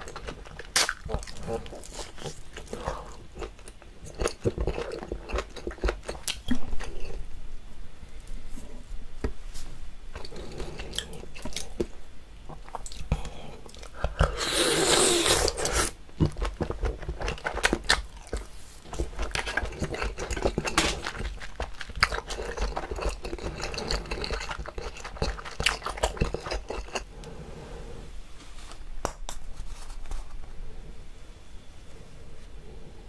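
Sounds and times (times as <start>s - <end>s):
wet sticky chewing: 12.5s - 27.1s.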